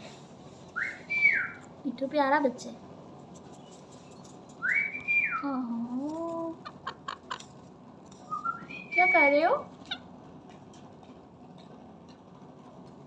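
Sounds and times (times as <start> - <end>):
parakeet whistling: 0.8 - 1.7, 4.6 - 5.5, 8.3 - 10.0.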